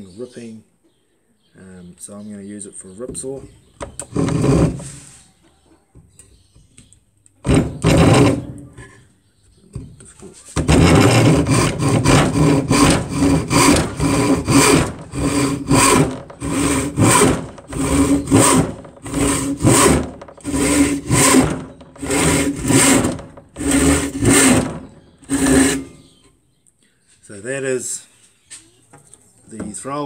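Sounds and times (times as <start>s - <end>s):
handsaw sawing wood: 3.9s - 5.1s, 7.5s - 8.6s, 10.6s - 26.0s.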